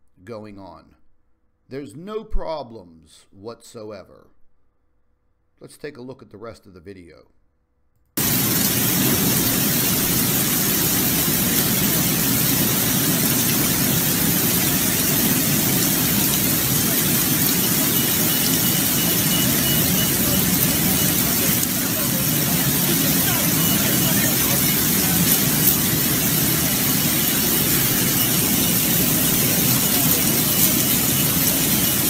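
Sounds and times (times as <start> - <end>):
heavy rain: 8.2 - 32.0
rushing floodwater: 8.2 - 32.0.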